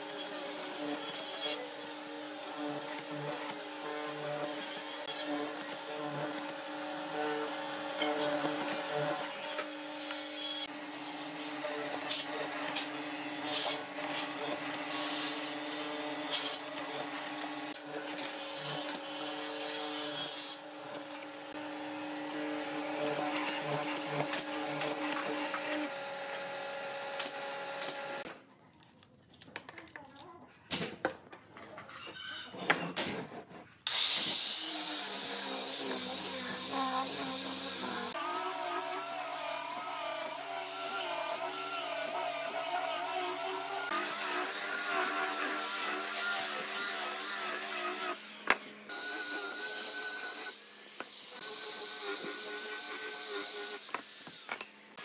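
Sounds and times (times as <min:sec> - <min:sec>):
handheld grinder running: 0:00.0 - 0:28.3, 0:33.9 - 0:55.0
mortiser motor hum: 0:02.0 - 0:28.3, 0:34.6 - 0:50.5.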